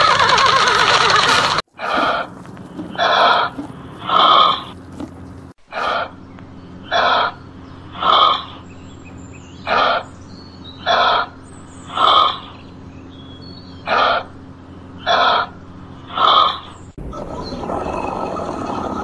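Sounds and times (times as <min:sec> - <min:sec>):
hoofbeats: 0:00.0 - 0:06.0
horse whinnying: 0:00.0 - 0:06.0
kangaroo rasping calls: 0:00.0 - 0:06.2, 0:06.8 - 0:08.8, 0:09.6 - 0:10.2, 0:10.8 - 0:12.7, 0:13.8 - 0:19.0.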